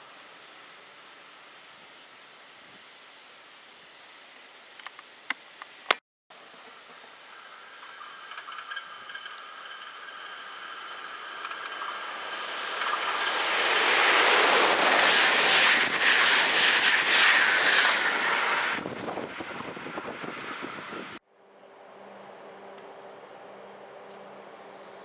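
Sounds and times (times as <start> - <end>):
electric locomotive whine: 7.1 - 25.0
train passing at speed: 7.2 - 25.0.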